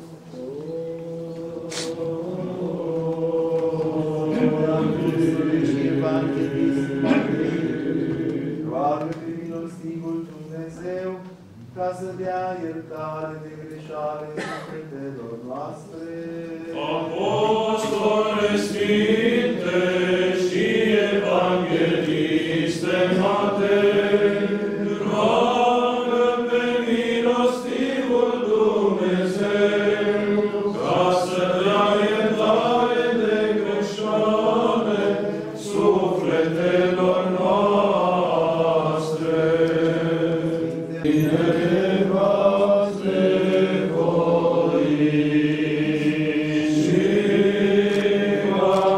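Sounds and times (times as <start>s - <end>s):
voices singing liturgical chant: 0.0s - 48.9s.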